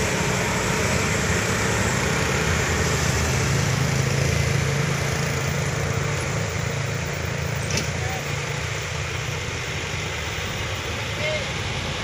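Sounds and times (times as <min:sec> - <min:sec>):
motorcycles passing: 0:00.0 - 0:12.0
truck engines droning: 0:00.0 - 0:12.0.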